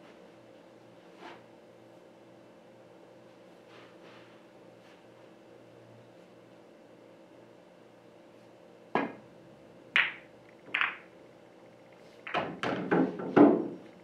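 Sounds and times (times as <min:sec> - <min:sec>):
cue striking ball: 0:09.0 - 0:09.2, 0:10.0 - 0:11.1
balls knocking off cushions: 0:10.0 - 0:10.2, 0:10.8 - 0:11.0
pool balls clicking: 0:10.0 - 0:11.1.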